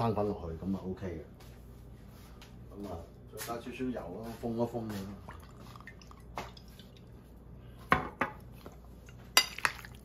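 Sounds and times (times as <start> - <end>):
spoon clinking ceramic bowl: 9.3 - 10.0.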